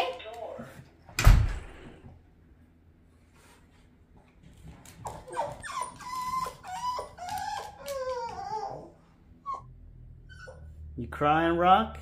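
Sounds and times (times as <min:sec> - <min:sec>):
dog whining and whimpering: 0:05.0 - 0:10.8.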